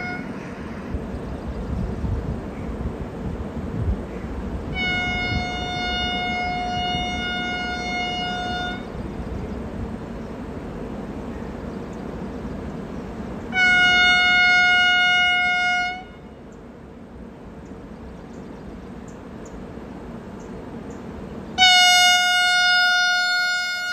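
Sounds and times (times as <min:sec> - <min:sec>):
train horn blasts: 0:00.0 - 0:00.7, 0:04.7 - 0:09.2, 0:13.5 - 0:16.5, 0:21.6 - 0:23.9
train coaches rumbling on track: 0:00.0 - 0:23.9.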